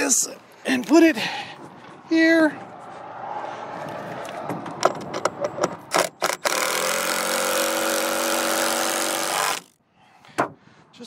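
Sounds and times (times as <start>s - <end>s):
sharp knocks and clicks: 4.4s - 6.6s
cordless drill driving screw: 5.9s - 9.8s.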